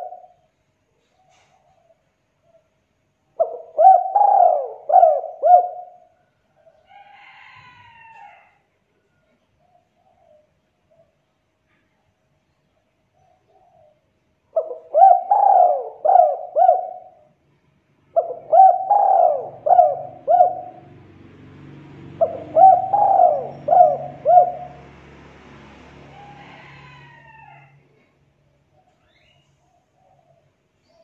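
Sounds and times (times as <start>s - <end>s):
dove cooing: 0.0s - 0.4s, 3.4s - 6.8s, 13.2s - 17.4s, 18.1s - 21.1s, 22.0s - 25.0s.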